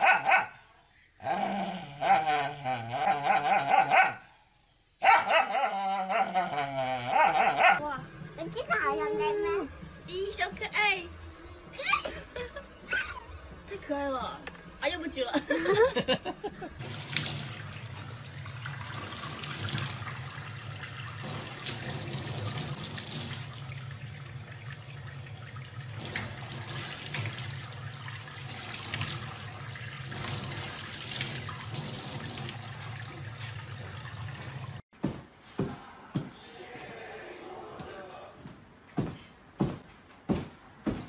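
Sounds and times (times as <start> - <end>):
water pouring into steel sink: 16.8 - 34.8
water splashing: 16.8 - 34.8.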